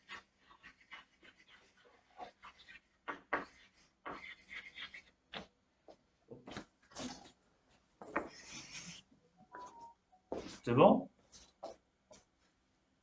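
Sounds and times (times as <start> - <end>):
chalk scratching on blackboard: 0.0 - 5.5, 8.0 - 9.0.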